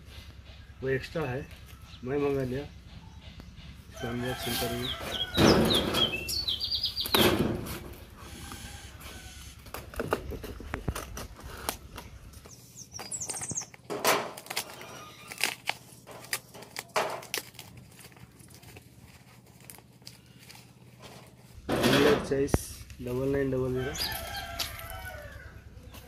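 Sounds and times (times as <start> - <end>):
bird chirping: 4.6 - 7.3, 12.4 - 13.9
cardboard parcel rustling: 9.2 - 21.6
cardboard tearing: 13.7 - 21.3.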